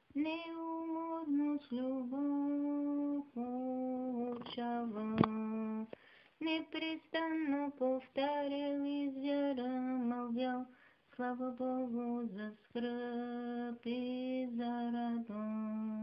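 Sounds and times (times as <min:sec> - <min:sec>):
sharp click: 0:04.4 - 0:05.4.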